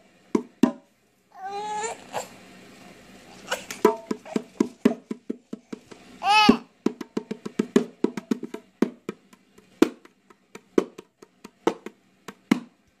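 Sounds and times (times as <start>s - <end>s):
hollow plastic toy knocks: 0.4s - 0.8s, 3.8s - 12.7s.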